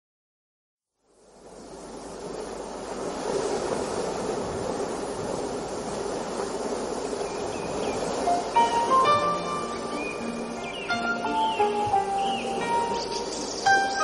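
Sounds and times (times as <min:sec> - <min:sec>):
sea surf: 0:01.3 - 0:14.0
faint bird chirps: 0:07.2 - 0:14.0
music notes: 0:08.3 - 0:14.0.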